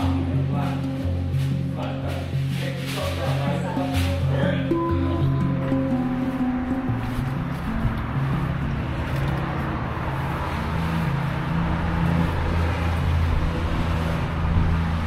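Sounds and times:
music of low held notes: 0:00.0 - 0:15.0
street noise hum: 0:00.0 - 0:15.0.

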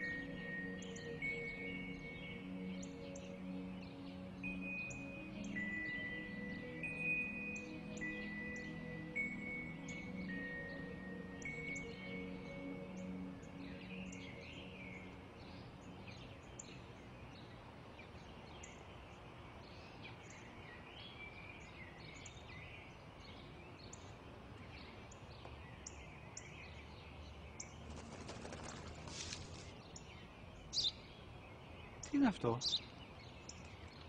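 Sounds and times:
small birds chirping: 0:00.0 - 0:34.0
newspaper pages rustling: 0:28.4 - 0:29.8.

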